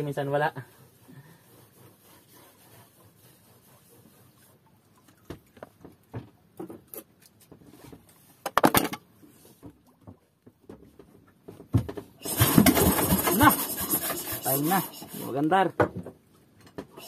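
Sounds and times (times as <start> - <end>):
pull-start rope knocks and clatter: 9.6 - 14.5
boat engine running roughly: 12.2 - 15.1.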